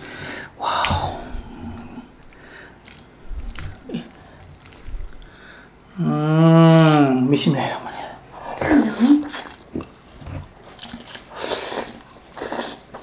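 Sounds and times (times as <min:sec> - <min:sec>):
broth dripping and splashing: 0:00.6 - 0:05.9.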